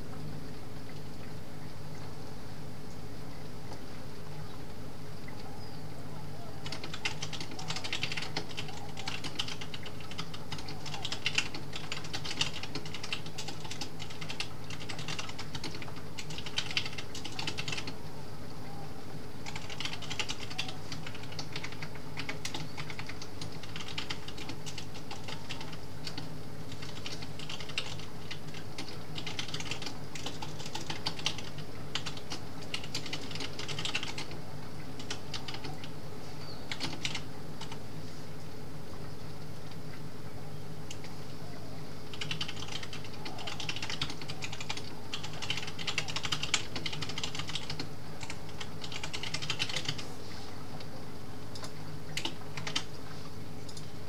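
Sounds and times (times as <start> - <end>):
low background noise: 0.0 - 54.0
keyboard typing: 6.6 - 18.0, 19.4 - 34.4, 35.0 - 35.9, 36.7 - 37.8, 42.1 - 50.1, 51.6 - 52.9.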